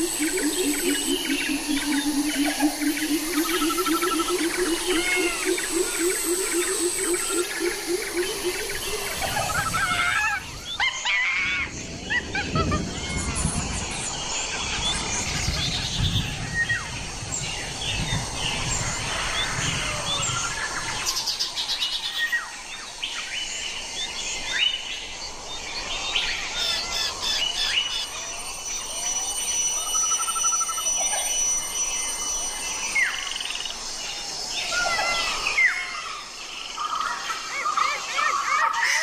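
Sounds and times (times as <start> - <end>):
bird trill: 0.0 - 11.6, 26.0 - 39.0.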